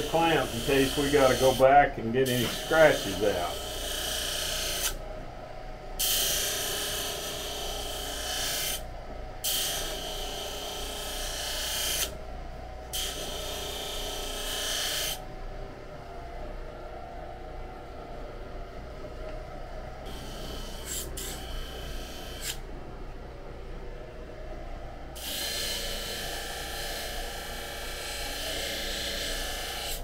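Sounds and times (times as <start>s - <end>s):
knife rasping on abrasive wheel: 0.0s - 1.6s
motor humming: 0.0s - 5.4s, 9.4s - 30.0s.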